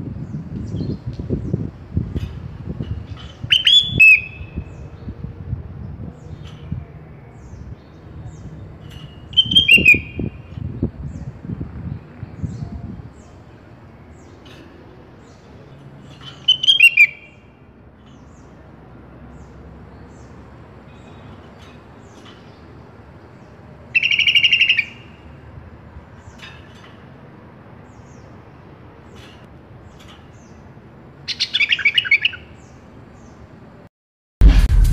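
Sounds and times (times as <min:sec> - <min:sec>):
bird singing high notes: 0:03.3 - 0:05.0, 0:08.9 - 0:10.5, 0:16.2 - 0:17.4.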